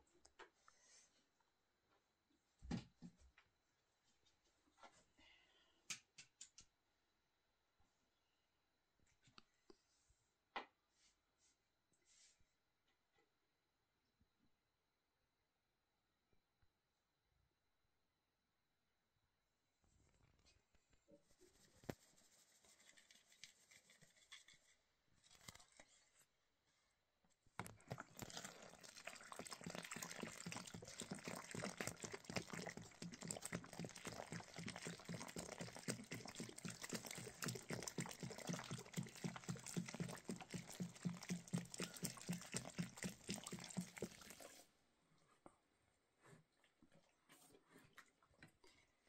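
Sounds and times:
water glugging from jerrycan: 27.6s - 44.6s.

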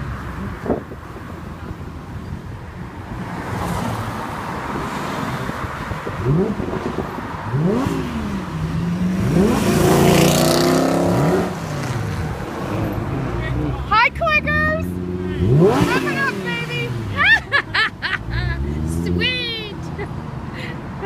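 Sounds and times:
car engine revving: 6.2s - 19.5s.

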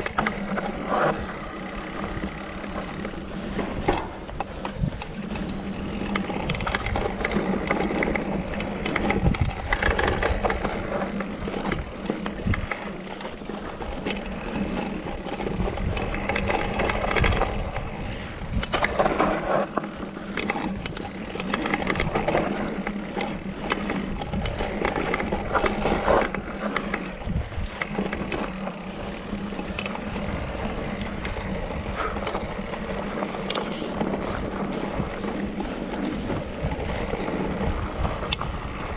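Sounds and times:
bike rattling and knocking: 0.0s - 38.9s.

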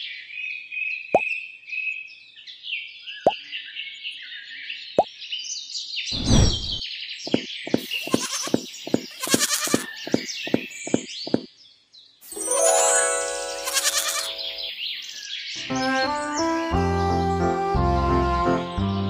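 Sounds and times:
birds chirping: 2.8s - 17.4s
low thud: 6.2s - 6.8s.

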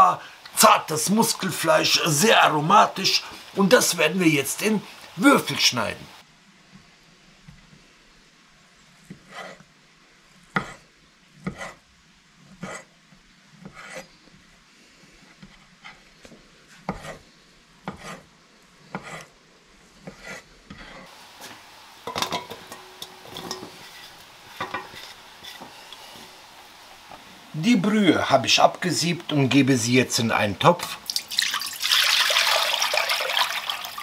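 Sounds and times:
scraping and clatter into a bowl: 22.1s - 25.7s.

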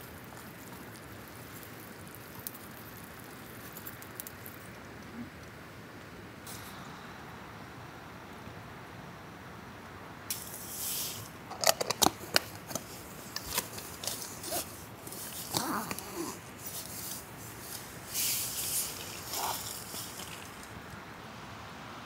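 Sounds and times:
fabric rustling: 12.2s - 20.9s.

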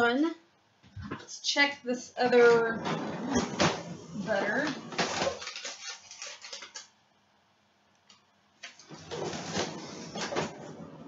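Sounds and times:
rustling and clatter: 2.7s - 6.9s, 8.6s - 11.0s.

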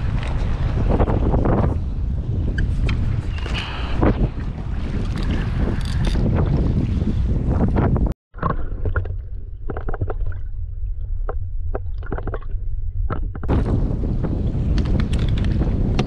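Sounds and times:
wind buffeting microphone: 0.0s - 8.2s, 11.2s - 16.0s
knocks and clicks: 8.4s - 10.3s, 11.2s - 13.5s
muffled low rumble: 8.4s - 16.0s.

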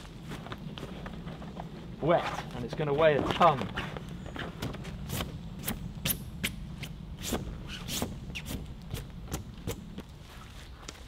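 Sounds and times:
wet canvas tent handling: 0.0s - 5.2s
low steady rumble: 0.0s - 10.4s
footsteps crunching in leaves: 9.7s - 11.0s.

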